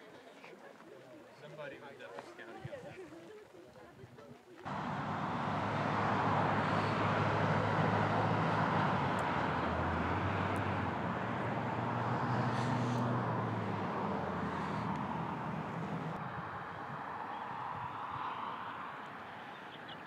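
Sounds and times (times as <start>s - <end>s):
vehicle engine running: 4.7s - 16.2s
broad rushing noise: 4.7s - 16.3s.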